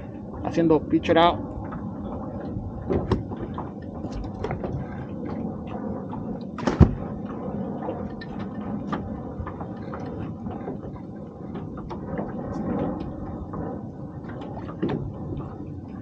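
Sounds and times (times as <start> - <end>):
low background rumble: 0.0 - 16.0.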